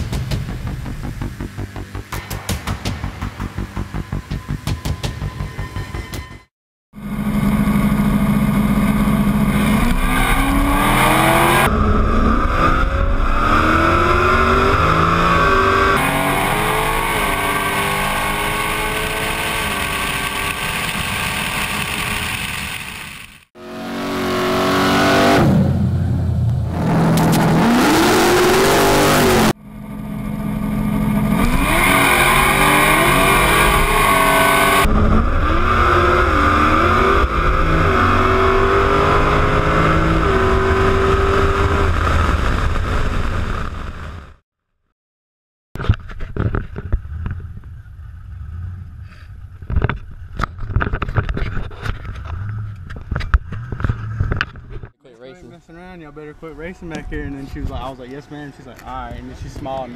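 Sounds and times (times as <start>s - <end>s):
car engines accelerating hard: 7.0s - 44.0s.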